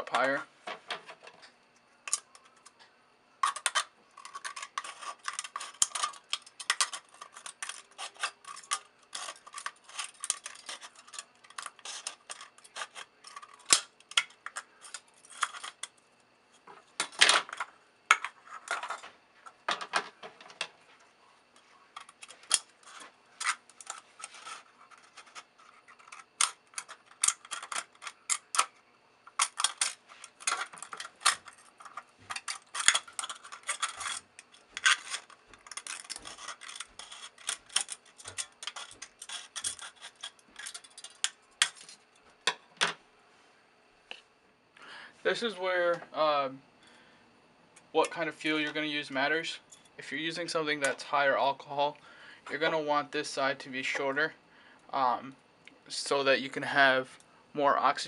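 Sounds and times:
metal crinkling: 3.4s - 16.0s, 21.6s - 42.3s.

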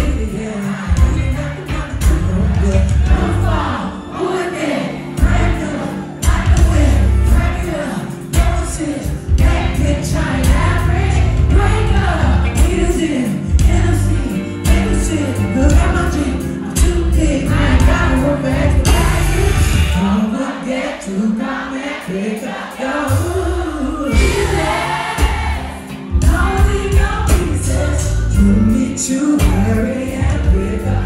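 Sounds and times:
drums: 0.0s - 3.7s, 5.2s - 20.1s, 23.1s - 31.0s
keyboards: 0.0s - 31.0s
heavy bass: 1.0s - 3.8s, 5.2s - 5.6s, 6.2s - 7.8s, 8.4s - 20.1s, 24.0s - 28.8s
woman singing into a microphone: 26.1s - 31.0s.

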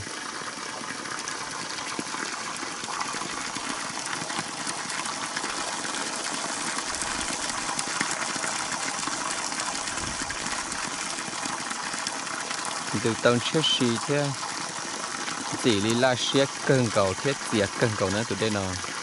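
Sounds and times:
water pouring onto rocks: 0.0s - 19.0s.

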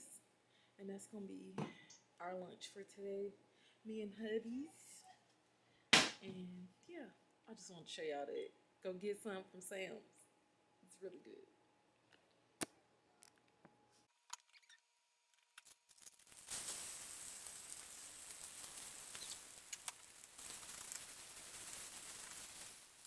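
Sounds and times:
fried rice sizzling in pan: 16.0s - 23.0s.

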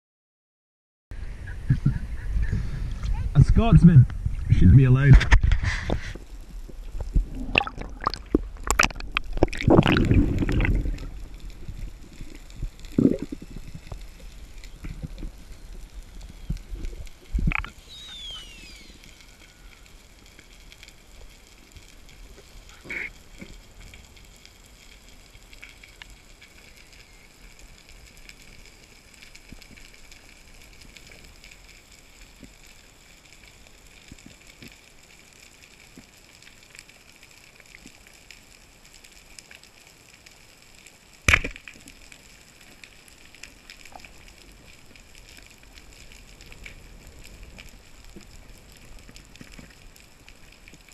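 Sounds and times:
underwater hiss: 5.4s - 8.4s, 9.0s - 35.3s.

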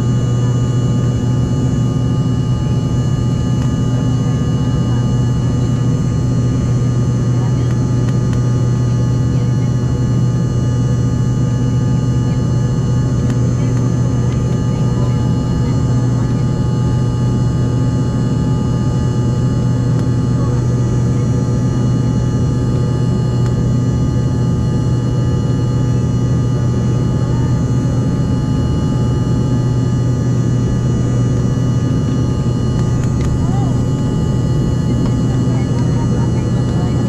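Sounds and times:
airliner cabin engine drone: 0.0s - 37.0s.

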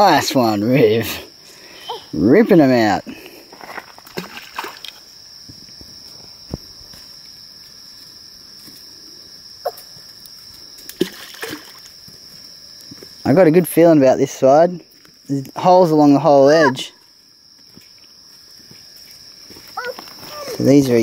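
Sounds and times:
insect chorus: 0.0s - 21.0s
water sloshing: 3.5s - 5.2s, 10.8s - 12.0s.

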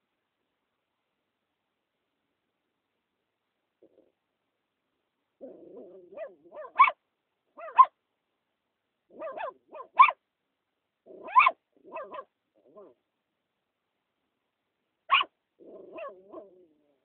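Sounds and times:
puppy barking and yipping: 5.4s - 7.0s, 7.6s - 8.0s, 9.1s - 10.2s, 11.1s - 13.0s, 15.1s - 16.7s.

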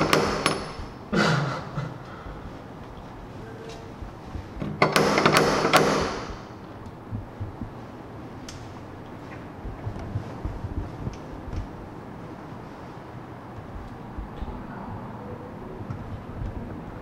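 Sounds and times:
door rattle: 0.0s - 1.1s, 2.3s - 7.8s
door latch and handle clicks: 4.6s - 6.5s.

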